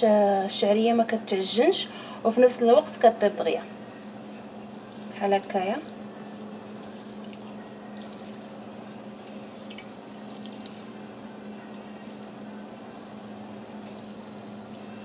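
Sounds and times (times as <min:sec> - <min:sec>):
steady low hum: 0:00.0 - 0:15.0
water poured over noodles: 0:10.3 - 0:11.0.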